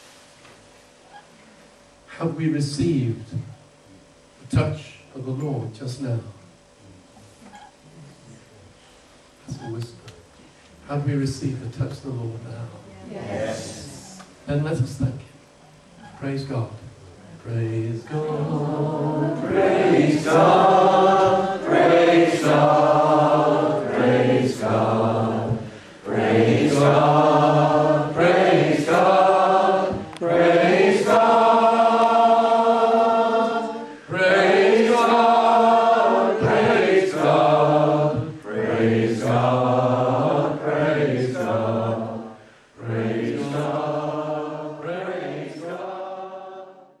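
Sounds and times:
congregation singing: 13.1s - 14.2s, 17.5s - 47.0s.

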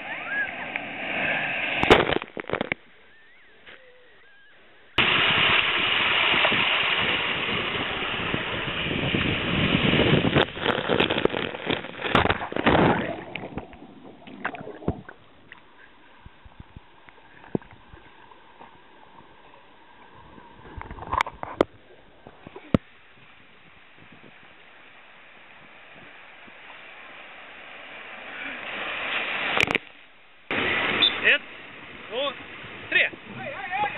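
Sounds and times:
churning rush of bubbles: 5.0s - 18.2s
water lapping: 10.2s - 30.0s
pool water sloshing and gurgling: 10.5s - 23.1s, 24.4s - 29.9s.

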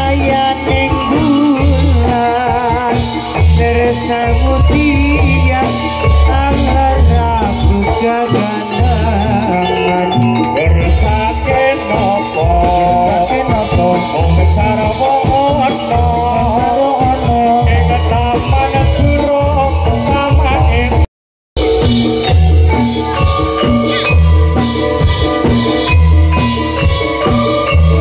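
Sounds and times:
person singing: 0.0s - 21.1s
deep drum beats: 0.0s - 28.0s
wavering melody line: 0.0s - 28.0s.

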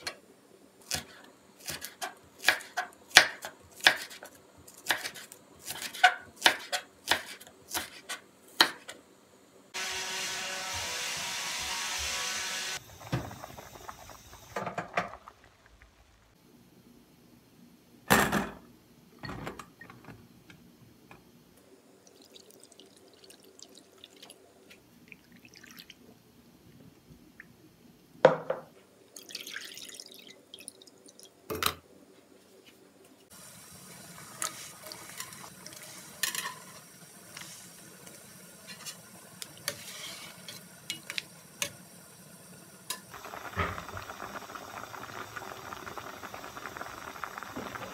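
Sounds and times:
gas stove hissing: 9.7s - 16.4s, 33.3s - 47.9s.

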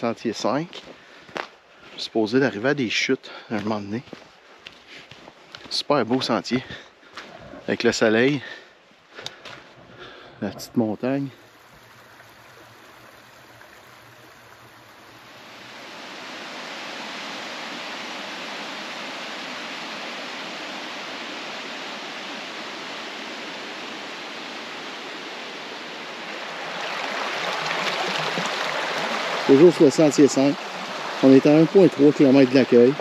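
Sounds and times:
stream water rushing: 9.2s - 33.0s.

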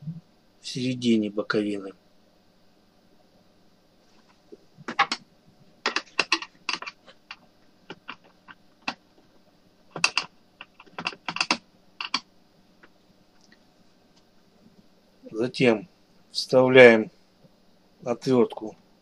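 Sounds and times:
screwdriver clicking on plastic: 10.0s - 12.2s.

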